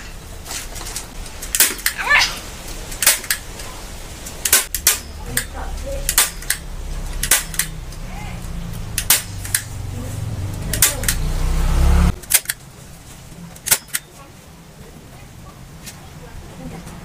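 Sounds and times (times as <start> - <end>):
low hum: 0.0 - 14.0
staple gun snapping: 4.4 - 6.6, 7.2 - 7.8, 9.0 - 9.7, 10.7 - 11.2, 12.2 - 12.6.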